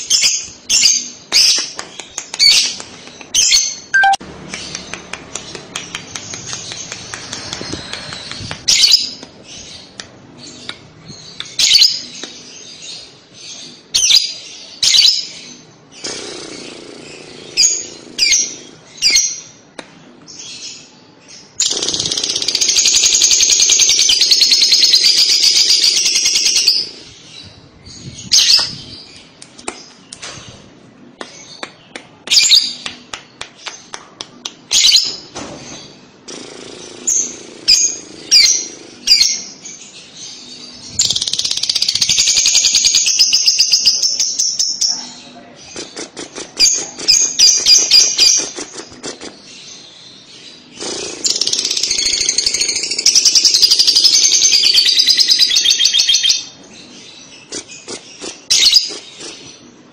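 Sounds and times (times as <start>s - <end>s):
bird rapid chatter: 1.4s - 10.0s, 16.0s - 18.8s, 21.6s - 27.2s, 45.6s - 49.9s, 50.6s - 56.1s, 57.3s - 59.7s
bird shrill chirps: 3.9s - 4.2s.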